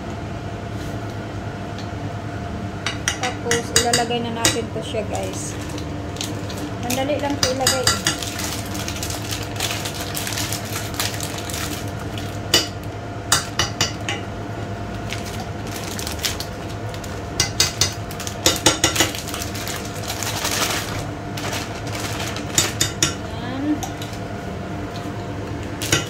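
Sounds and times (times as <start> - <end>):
steady hum: 0.0 - 26.0
water boiling in a pot: 4.7 - 24.4
plastic bag rustling: 5.1 - 7.4, 8.0 - 12.5, 14.9 - 17.4, 18.0 - 22.8.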